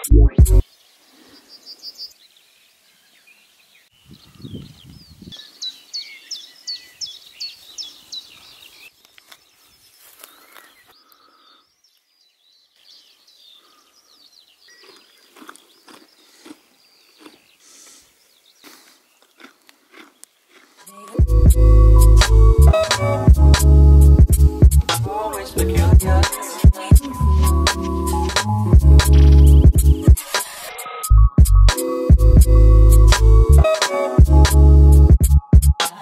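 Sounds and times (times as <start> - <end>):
birds singing: 0.6 - 20.6, 29.1 - 30.1
sharp high bird chirps: 29.0 - 30.8.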